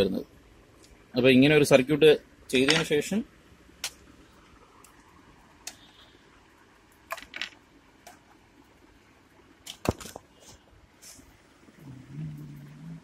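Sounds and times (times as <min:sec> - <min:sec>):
faint room hiss: 0:00.0 - 0:13.0.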